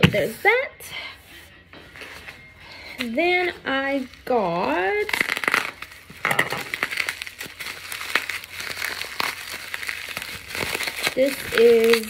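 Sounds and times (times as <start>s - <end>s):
packaging crinkling: 3.0s - 12.0s.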